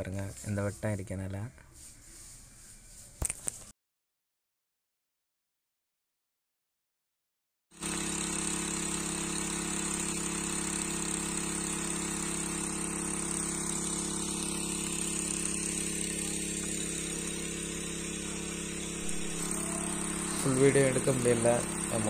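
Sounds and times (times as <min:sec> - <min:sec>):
pump motor humming: 0:07.8 - 0:22.0.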